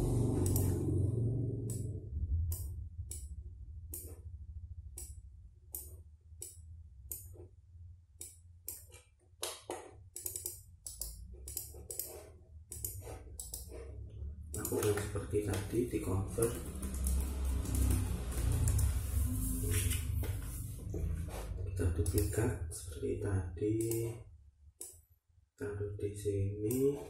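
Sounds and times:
low hum: 0.0s - 8.9s, 9.9s - 27.0s
computer mouse clicking: 0.4s - 0.8s, 5.0s - 7.4s, 8.2s - 13.9s, 14.5s - 20.5s, 22.0s - 22.5s, 23.8s - 24.2s.

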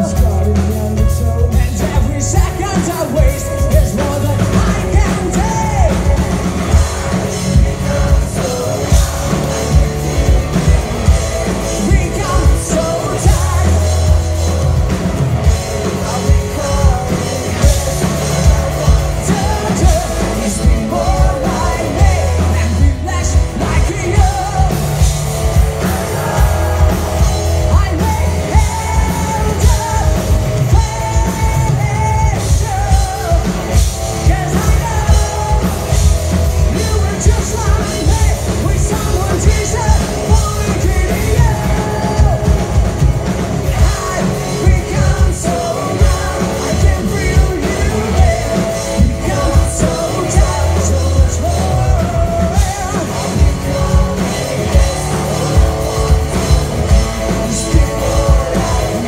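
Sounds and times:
bass guitar: 0.0s - 59.0s
drum kit beat: 0.0s - 59.0s
electric guitars: 0.0s - 59.0s
person singing: 0.0s - 59.0s.

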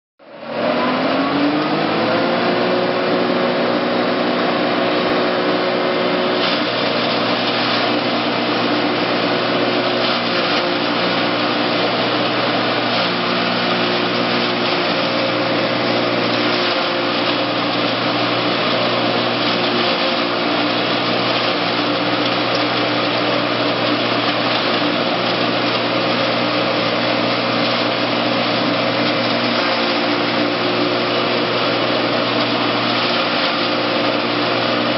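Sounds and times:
chopper machine running: 0.9s - 34.9s.

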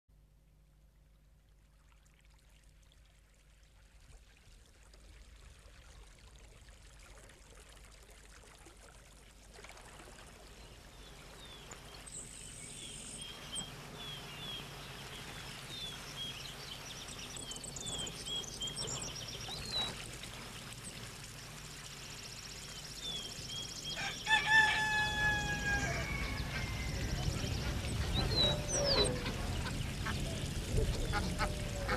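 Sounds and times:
even outdoor hiss: 0.2s - 31.9s
birds chirping: 10.7s - 31.9s.

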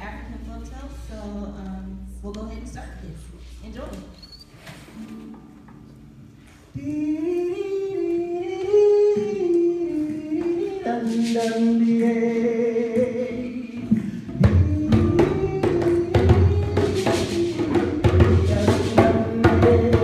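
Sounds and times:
person singing long held notes: 6.7s - 20.0s
drumbeats: 13.0s - 20.0s.

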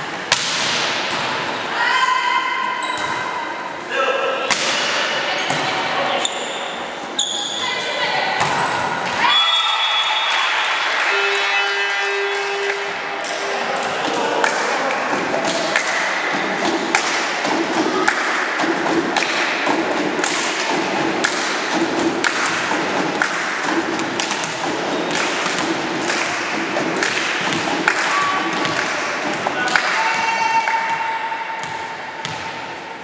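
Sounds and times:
spectators keeping a steady beat: 12.1s - 32.8s.

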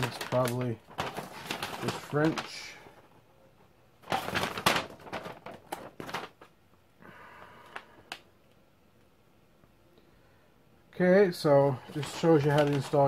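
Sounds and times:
paper crinkling and flapping: 0.0s - 6.6s, 11.7s - 13.0s
soft paper rustles and ticks: 0.0s - 6.6s, 11.4s - 13.0s.

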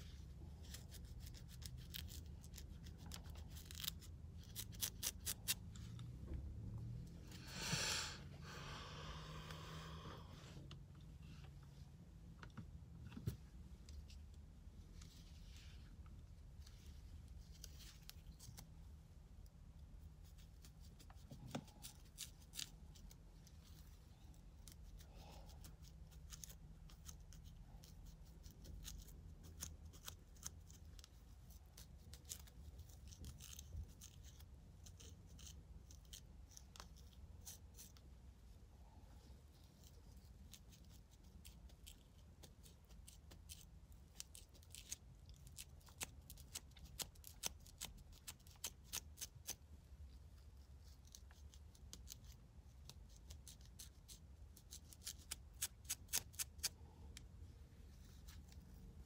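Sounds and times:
low steady hum: 0.0s - 59.0s
comb scratching through hair: 39.5s - 49.6s, 50.6s - 56.8s.

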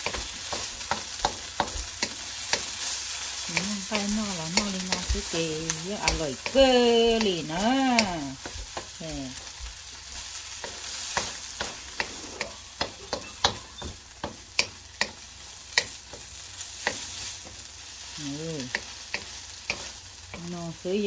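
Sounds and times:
food sizzling in a pan: 0.0s - 21.0s
sharp clicks and taps: 3.5s - 7.4s.

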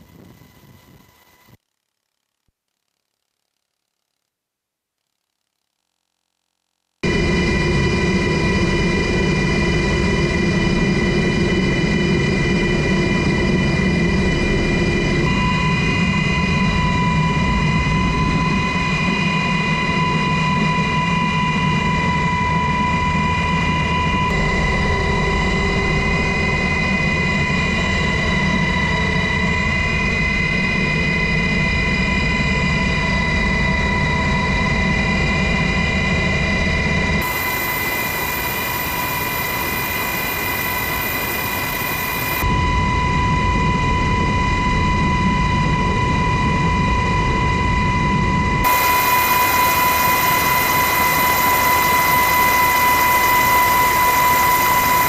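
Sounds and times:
helicopter turbine whine: 0.0s - 1.6s, 7.0s - 55.0s
low rotor noise: 35.2s - 55.0s.

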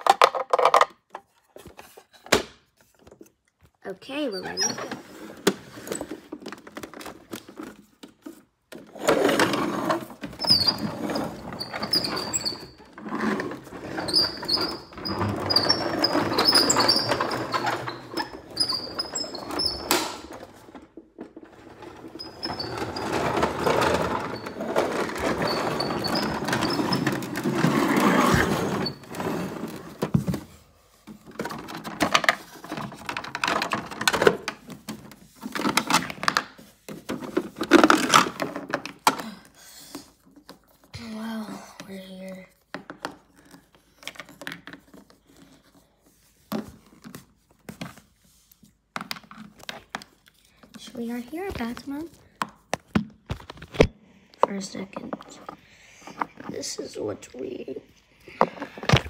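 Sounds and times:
toy wheels rolling on wooden floor: 0.0s - 2.1s, 3.9s - 48.1s, 54.4s - 59.0s.

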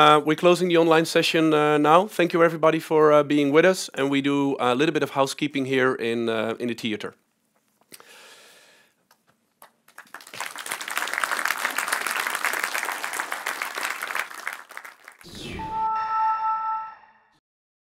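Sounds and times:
audience applauding: 9.6s - 15.3s.

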